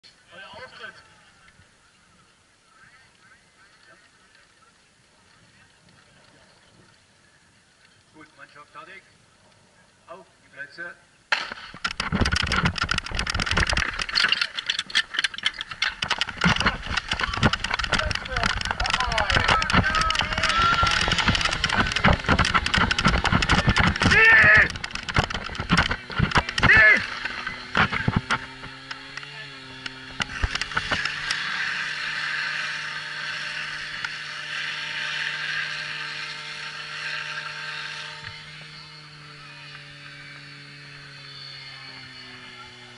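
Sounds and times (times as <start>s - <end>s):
sharp clicks and knocks: 11.3s - 31.7s
running footsteps and gear rattle: 11.4s - 34.7s
pump engine running: 11.4s - 42.9s
water rushing through hose: 11.8s - 40.2s.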